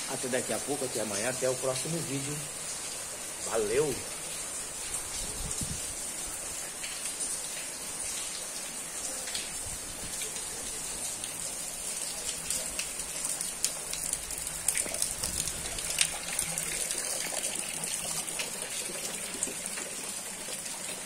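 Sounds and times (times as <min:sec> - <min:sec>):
rain falling on tiled patio: 0:00.0 - 0:21.0
rain drop impacts: 0:06.6 - 0:21.0.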